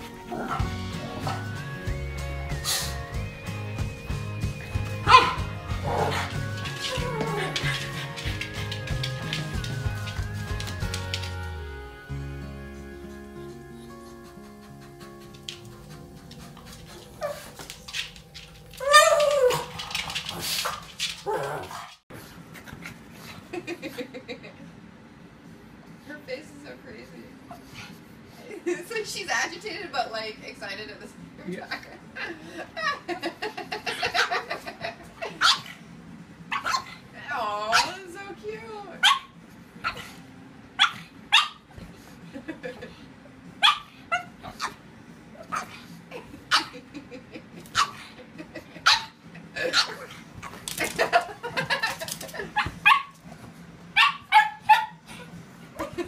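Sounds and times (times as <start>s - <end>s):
dogs yipping and whining: 4.6s - 9.3s, 14.0s - 20.6s, 35.3s - 35.8s, 36.5s - 37.0s, 39.0s - 42.0s, 43.6s - 47.0s, 47.6s - 53.3s, 53.9s - 55.4s
pug barking: 5.0s - 8.0s, 35.4s - 35.8s, 36.5s - 37.0s, 37.7s - 38.0s, 39.0s - 40.2s, 40.8s - 41.7s, 43.6s - 44.8s, 45.4s - 45.8s, 46.5s - 46.8s, 47.7s - 48.2s, 48.8s - 50.1s, 52.6s - 53.2s, 54.0s - 55.1s
dog yelping: 18.8s - 19.8s, 35.4s - 35.8s, 36.5s - 37.0s, 39.0s - 40.2s, 40.8s - 41.6s, 48.8s - 50.1s, 52.6s - 53.1s, 54.0s - 55.0s.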